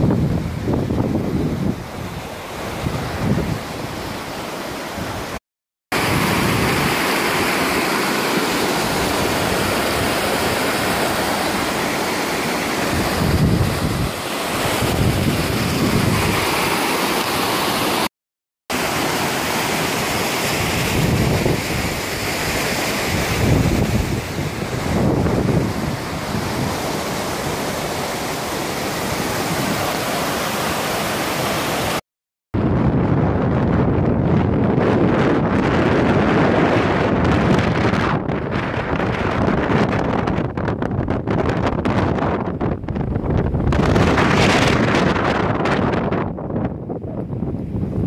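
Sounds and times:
wind gusting on microphone: 0.0s - 18.1s, 18.9s - 32.0s, 32.6s - 48.0s
rushing rocky creek: 1.8s - 18.1s, 18.7s - 32.0s.

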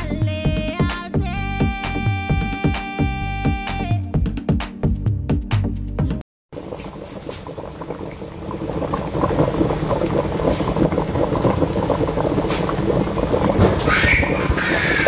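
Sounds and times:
stew bubbling in a pan: 6.5s - 15.0s.

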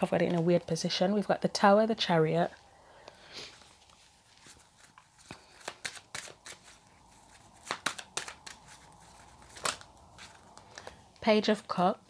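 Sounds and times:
cards being shuffled: 3.4s - 11.0s.

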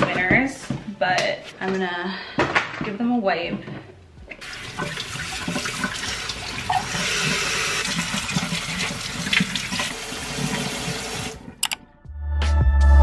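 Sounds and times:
water pouring from faucet: 4.4s - 11.5s.

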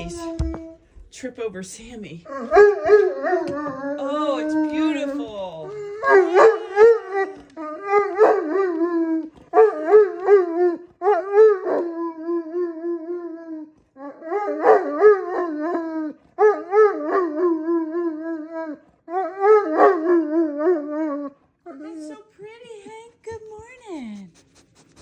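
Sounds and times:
dog howling: 2.3s - 21.9s.

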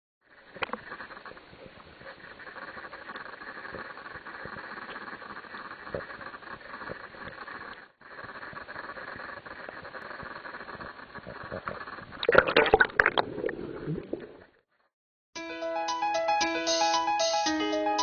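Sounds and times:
choppy splashing and bubbling: 0.3s - 14.6s.

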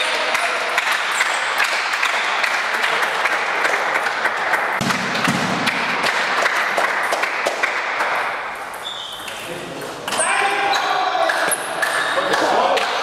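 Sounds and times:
spectators clapping: 0.0s - 8.6s, 11.2s - 13.0s.

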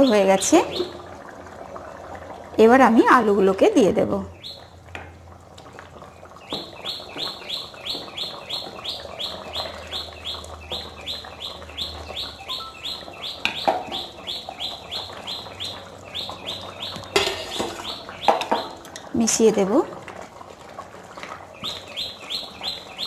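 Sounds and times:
bird chirping: 4.3s - 4.7s, 6.4s - 18.8s, 21.6s - 23.0s.

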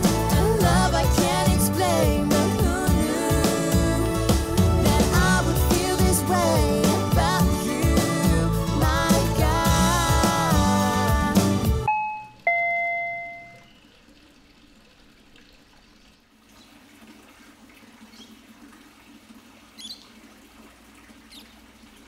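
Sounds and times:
doorbell chime ringing: 11.9s - 13.8s.

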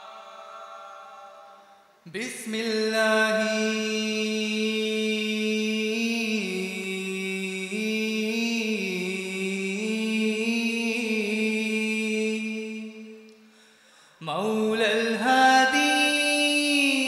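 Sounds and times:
unaccompanied vocal chant: 0.0s - 1.7s.

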